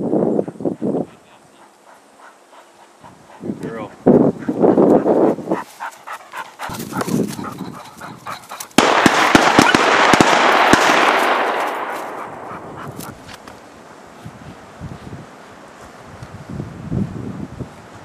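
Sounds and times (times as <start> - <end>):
wind noise on microphone: 0.0 - 1.6, 3.0 - 10.2, 12.1 - 18.0
dog crying: 5.5 - 8.7
distant shotgun shots: 8.8 - 12.5.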